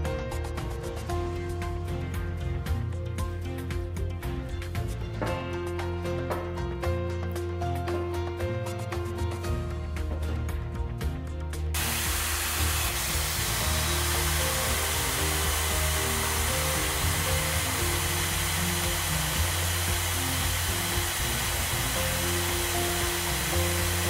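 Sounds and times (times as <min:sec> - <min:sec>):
electric drill boring into steel: 0:11.8 - 0:24.0.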